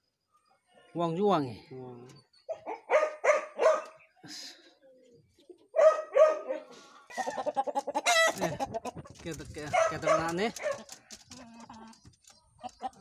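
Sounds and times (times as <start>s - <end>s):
chickens clucking: 3.6s - 13.0s.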